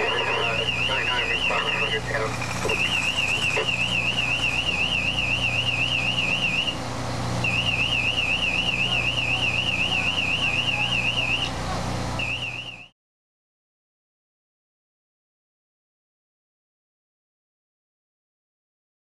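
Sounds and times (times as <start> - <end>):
electronic alarm warbling: 0.0 - 6.8, 7.4 - 11.6, 12.2 - 12.9
steady low hum: 0.0 - 12.9.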